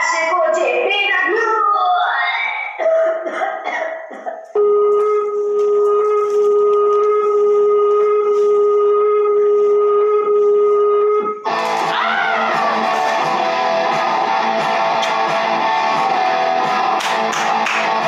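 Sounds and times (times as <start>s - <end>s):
electric guitar music: 11.4s - 18.0s.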